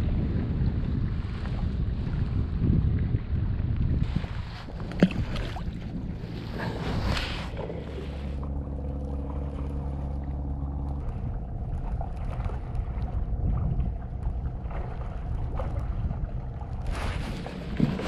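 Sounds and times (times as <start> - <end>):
boat engine droning: 0.0 - 18.0
faint steady hum: 4.1 - 17.9.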